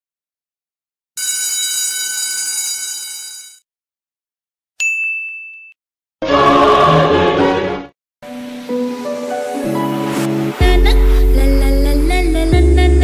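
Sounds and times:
bright ding: 0:04.8 - 0:05.8
choir chord: 0:06.2 - 0:11.9.

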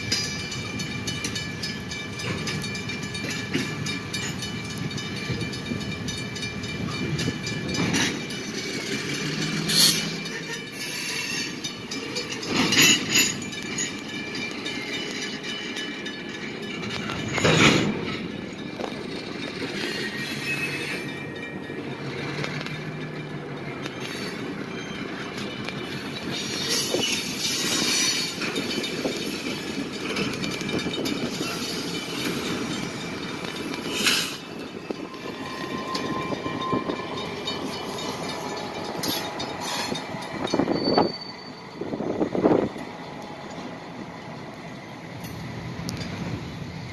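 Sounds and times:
faint wheel squeal: 0:09.7 - 0:11.6, 0:19.8 - 0:21.2, 0:39.0 - 0:41.8.

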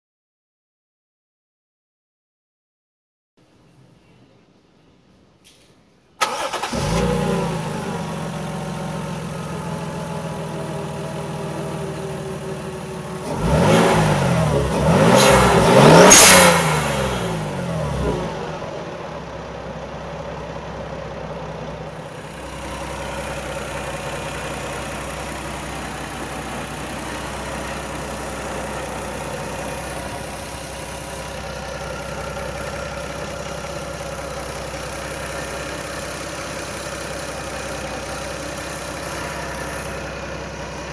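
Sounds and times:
car engine revving: 0:06.2 - 0:19.0, 0:21.9 - 0:40.9
car engine idling: 0:06.2 - 0:40.9.

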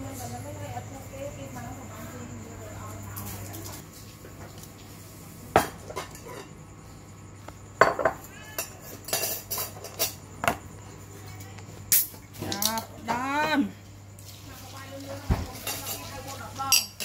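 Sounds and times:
dishes and cutlery clinking: 0:05.5 - 0:06.6, 0:07.8 - 0:10.6, 0:15.3 - 0:17.0.

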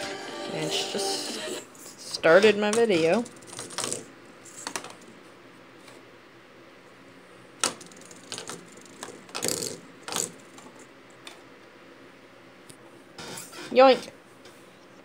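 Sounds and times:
plastic spinner clattering on desk: 0:07.6 - 0:10.7.

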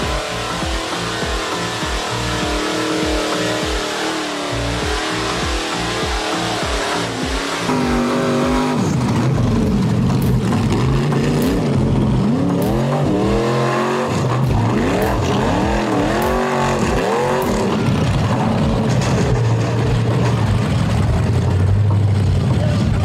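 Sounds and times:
buggy engine revving hard: 0:00.0 - 0:23.0.

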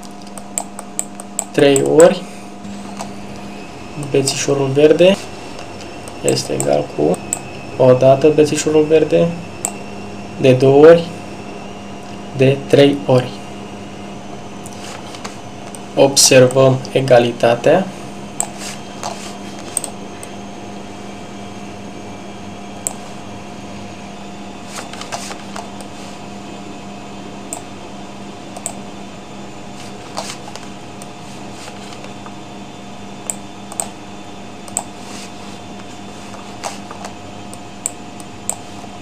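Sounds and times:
electrical hum: 0:00.0 - 0:39.0
mouse and keyboard clicks: 0:33.3 - 0:33.9.

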